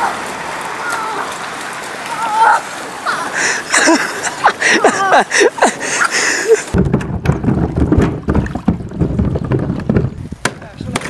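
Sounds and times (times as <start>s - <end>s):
floodwater rushing: 0.0s - 11.0s
people shouting excitedly: 2.1s - 3.4s
scattered knocks: 6.8s - 11.0s.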